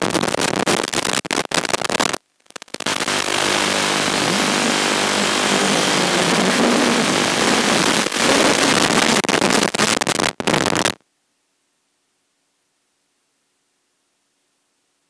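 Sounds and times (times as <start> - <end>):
drone motors buzzing: 2.8 - 8.2.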